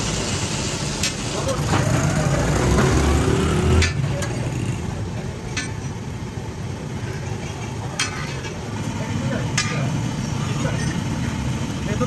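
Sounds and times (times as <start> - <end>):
low traffic rumble: 0.0 - 12.0
metal spatula clinking on griddle: 8.0 - 8.6.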